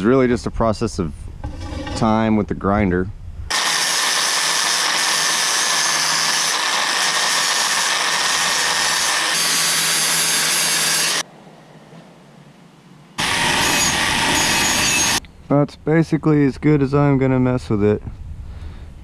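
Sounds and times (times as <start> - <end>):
angle grinder grinding metal: 3.5 - 11.2, 13.2 - 15.2.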